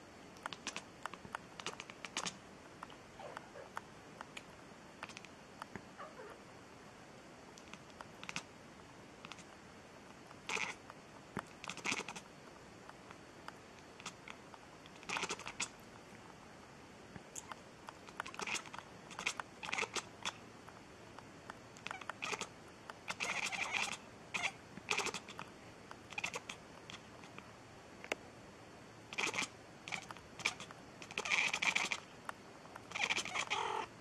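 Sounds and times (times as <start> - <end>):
cat chirping and meowing: 6.0 - 6.4, 10.5 - 10.8, 18.2 - 20.4, 21.8 - 22.5, 23.1 - 25.4, 26.1 - 27.4, 29.1 - 32.1, 32.9 - 33.9.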